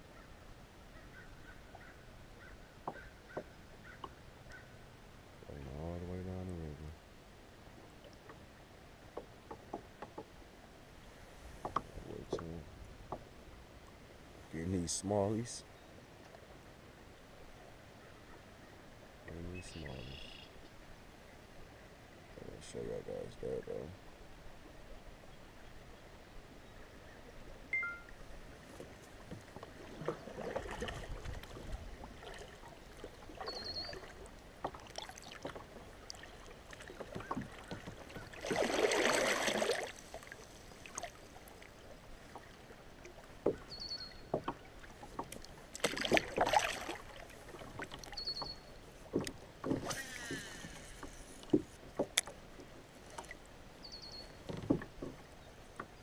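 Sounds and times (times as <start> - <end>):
water lapping against kayak hull: 26.6 - 56.0
short high chirps: 27.7 - 28.2
water splashing: 27.8 - 43.7, 44.5 - 52.4.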